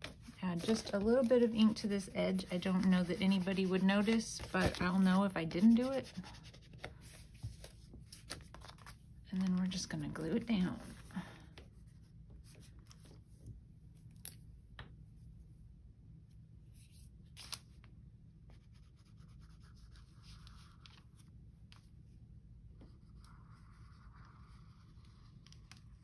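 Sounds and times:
hand smoothing paper: 0:00.0 - 0:08.7
paper handling: 0:00.0 - 0:09.8, 0:16.8 - 0:17.8
low steady hum: 0:00.0 - 0:26.0.

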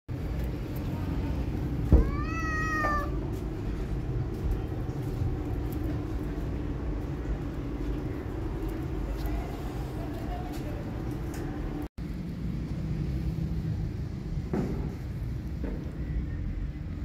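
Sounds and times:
steady low rumble: 0:00.1 - 0:17.0
kitten meowing: 0:02.0 - 0:03.2.

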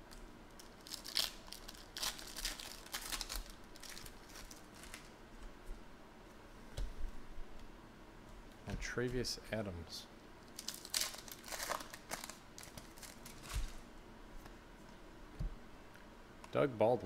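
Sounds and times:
foil wrapper tearing and crinkling: 0:00.6 - 0:05.1, 0:10.5 - 0:13.8.

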